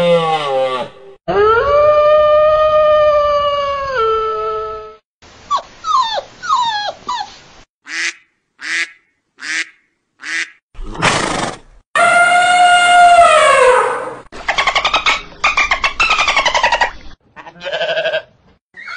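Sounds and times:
canine howl: 0:00.0 - 0:05.0, 0:12.0 - 0:14.2.

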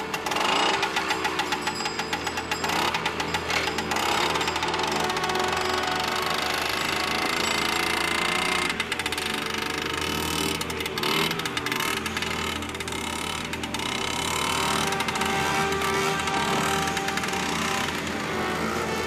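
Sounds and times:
small engine popping: 0:00.0 - 0:19.0.

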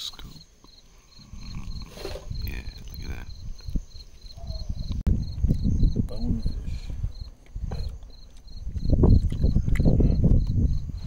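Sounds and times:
insect chirping: 0:00.0 - 0:11.0.

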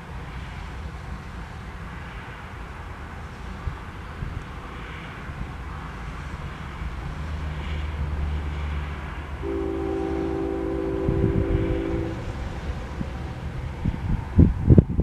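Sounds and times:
diesel locomotive engine rumble: 0:00.0 - 0:15.0
train air horn: 0:09.4 - 0:14.3.

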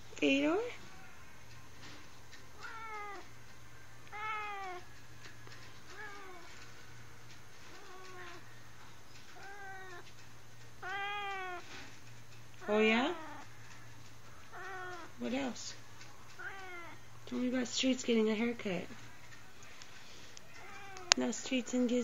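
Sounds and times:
cat meowing: 0:02.5 - 0:03.4, 0:04.1 - 0:04.9, 0:05.6 - 0:06.7, 0:07.6 - 0:08.5, 0:09.2 - 0:10.2, 0:10.8 - 0:11.9, 0:12.6 - 0:13.5, 0:14.4 - 0:15.2, 0:16.3 - 0:17.1, 0:20.4 - 0:21.2.

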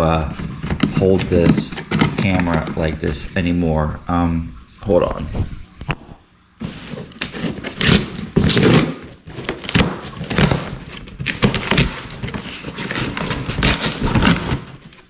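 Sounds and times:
cardboard ripping and crackling: 0:06.6 - 0:15.0.

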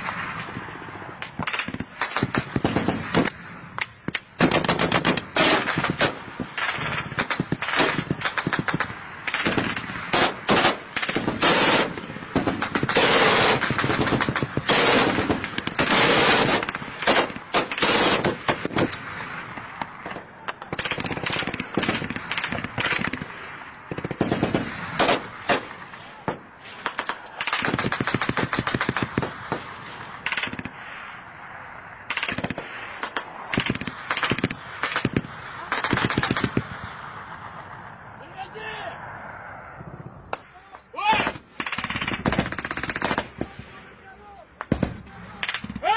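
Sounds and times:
machine-gun fire bursts: 0:01.3 - 0:03.4, 0:04.0 - 0:19.7, 0:20.6 - 0:23.3, 0:23.9 - 0:26.0, 0:26.8 - 0:30.8, 0:32.1 - 0:36.7, 0:41.3 - 0:43.4.

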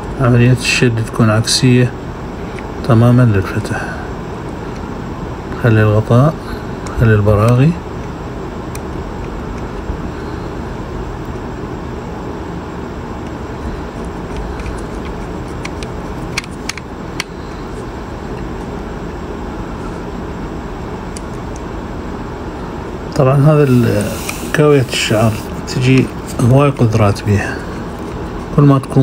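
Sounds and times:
steady background noise: 0:00.0 - 0:29.0
plastic parts clicking: 0:14.2 - 0:17.3.

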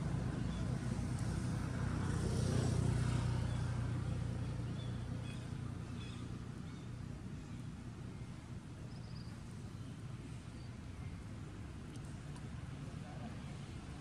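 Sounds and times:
motor vehicle engine passing: 0:00.0 - 0:07.1.

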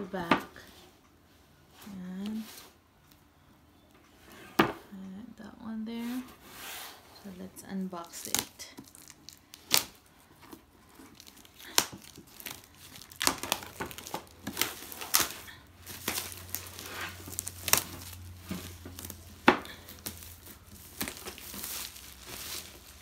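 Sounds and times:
plastic bag crinkling: 0:08.0 - 0:23.0.

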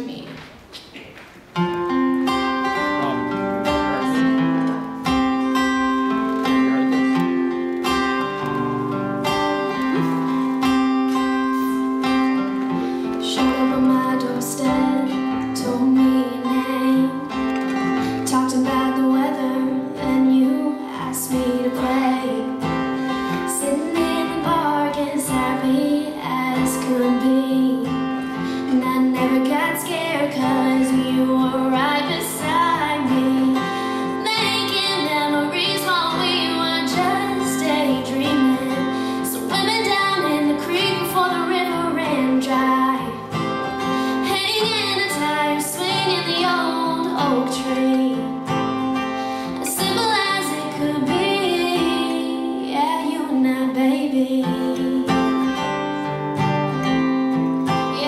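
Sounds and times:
acoustic guitar: 0:00.0 - 0:58.0
woman singing: 0:11.2 - 0:55.8, 0:57.7 - 0:58.0.

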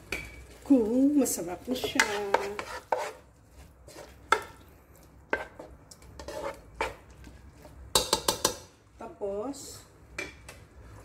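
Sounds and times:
spatula scraping a wok: 0:01.3 - 0:08.7.

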